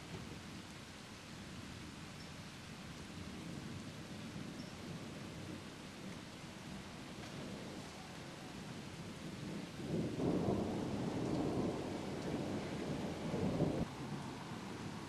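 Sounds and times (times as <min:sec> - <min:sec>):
thunder rumbling: 0:04.3 - 0:15.0.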